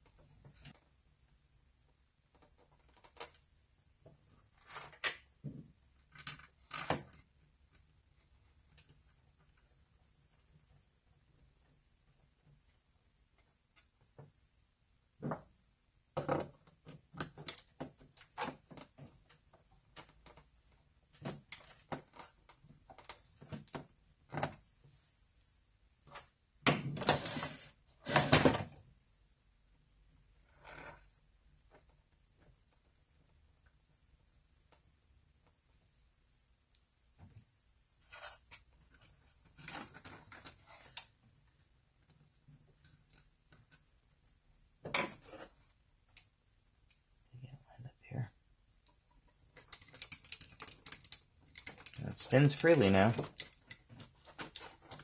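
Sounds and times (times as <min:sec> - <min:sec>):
plastic parts knocking and rubbing: 0:15.1 - 0:25.1, 0:37.1 - 0:45.8, 0:49.0 - 0:55.0
hands handling plastic parts: 0:48.8 - 0:55.0.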